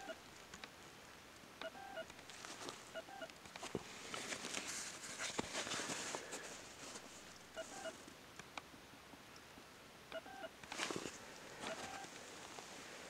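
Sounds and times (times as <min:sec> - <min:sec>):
fabric rustling: 0:02.2 - 0:03.0, 0:03.6 - 0:08.1, 0:10.6 - 0:13.0.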